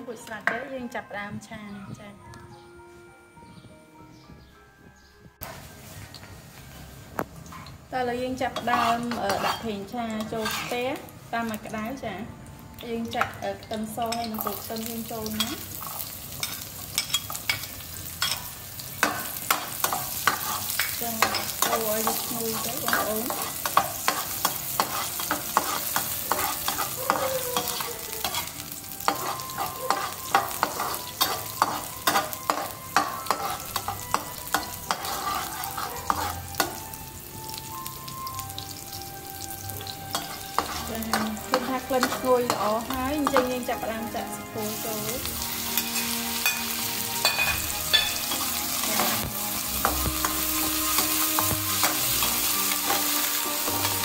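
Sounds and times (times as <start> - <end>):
oil sizzling in a wok: 5.4 - 54.0
spatula scraping and tapping pan: 8.5 - 10.8, 15.4 - 36.8, 39.8 - 43.8, 45.8 - 54.0.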